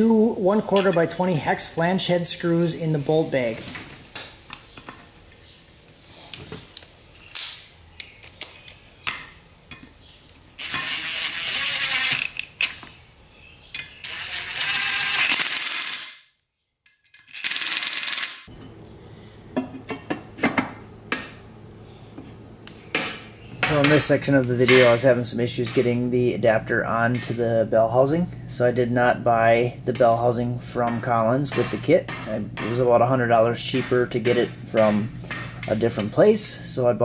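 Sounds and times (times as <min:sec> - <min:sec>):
cordless drill driving screws: 0:10.6 - 0:12.5, 0:14.0 - 0:16.1.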